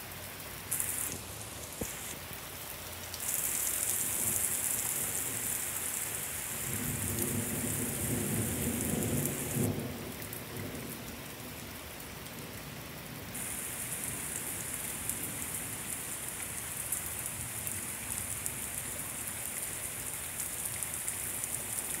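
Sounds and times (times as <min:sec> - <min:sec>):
heavy rain pouring: 0:00.0 - 0:22.0
thunder rumbling: 0:06.4 - 0:10.1.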